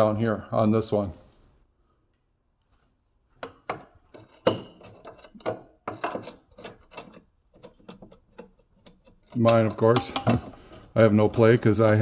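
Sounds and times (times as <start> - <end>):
metal pry bar knocking and scraping: 3.4 - 12.0.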